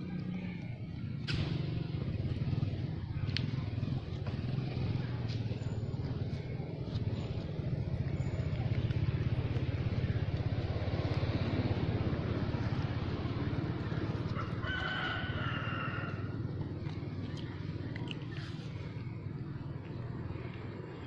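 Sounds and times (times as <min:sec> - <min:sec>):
motorbike engine passing: 0:00.0 - 0:21.0
rooster crowing: 0:14.3 - 0:16.4.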